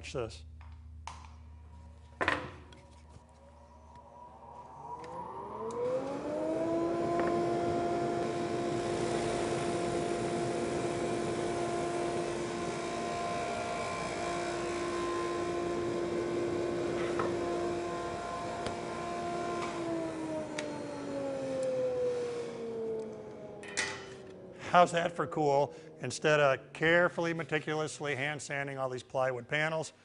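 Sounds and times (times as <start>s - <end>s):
sander whining: 3.4s - 26.7s.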